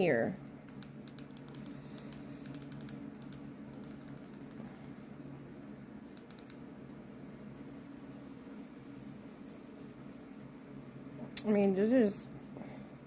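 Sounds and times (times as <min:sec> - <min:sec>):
steady low hum: 0:00.0 - 0:13.0
remote control buttons clicking: 0:00.7 - 0:04.9, 0:06.1 - 0:06.6.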